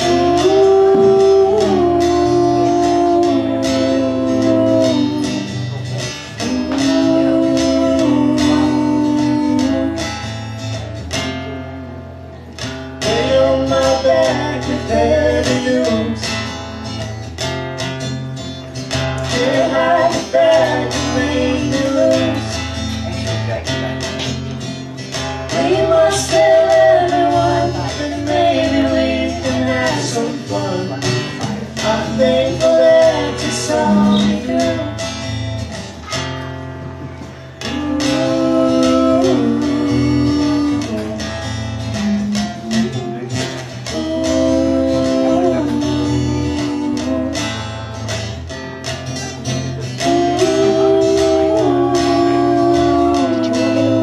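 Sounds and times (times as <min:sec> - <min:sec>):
person singing: 0:00.0 - 0:10.3, 0:13.0 - 0:16.4, 0:19.2 - 0:22.7, 0:25.5 - 0:35.3, 0:37.5 - 0:47.7, 0:49.8 - 0:54.0
strummed acoustic guitar: 0:00.0 - 0:54.0.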